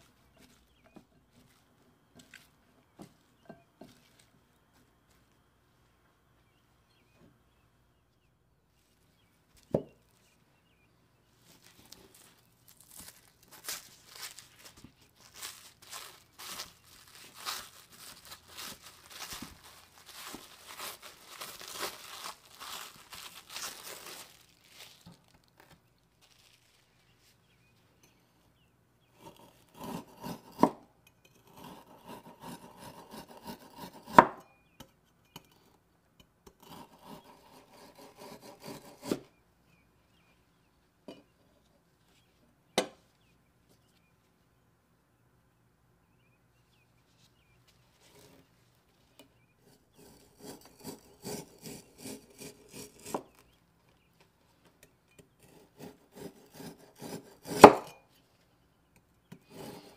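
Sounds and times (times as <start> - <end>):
plastic wrap crinkling: 11.5 - 27.2
cleaver rasping through meat: 49.9 - 53.4.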